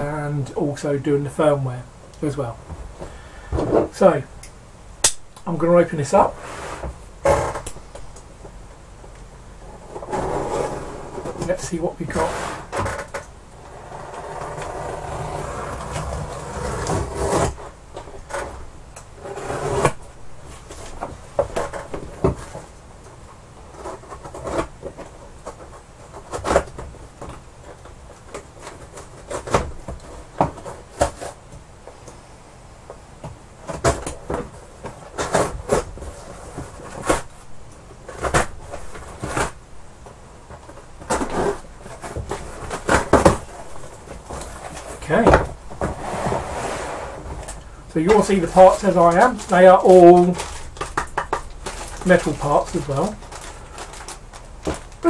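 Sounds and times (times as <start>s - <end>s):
cardboard scraping and knocks: 6.3s - 8.0s, 9.7s - 18.6s, 19.2s - 22.7s, 28.2s - 31.4s, 33.6s - 39.6s, 40.5s - 55.0s.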